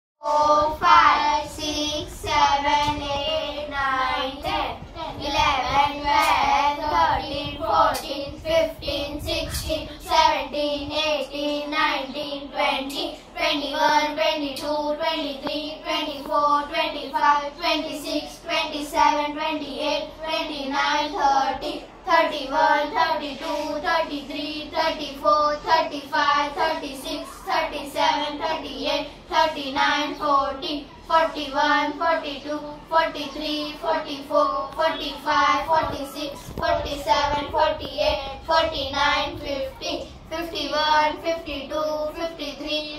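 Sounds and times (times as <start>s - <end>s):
children chanting in unison: 0.2s - 42.9s.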